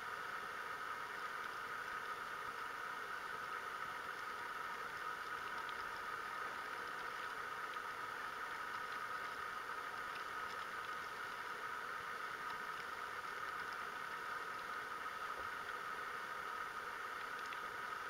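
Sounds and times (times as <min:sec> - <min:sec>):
faint hiss: 0:00.0 - 0:18.0
steady hum: 0:00.0 - 0:18.0
faint ticks: 0:00.1 - 0:18.0.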